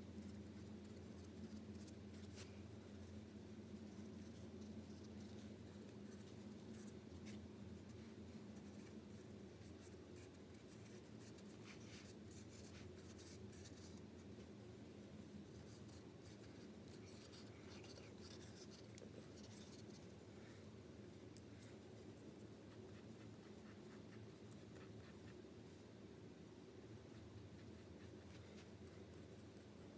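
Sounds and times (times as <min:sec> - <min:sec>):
low room hum: 0:00.0 - 0:29.9
marker scratching on paper: 0:09.6 - 0:14.0.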